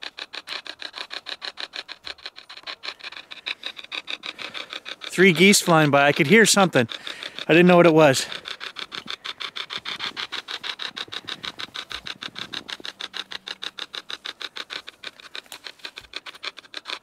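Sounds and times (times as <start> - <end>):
radio static pulses: 5.1 - 13.8.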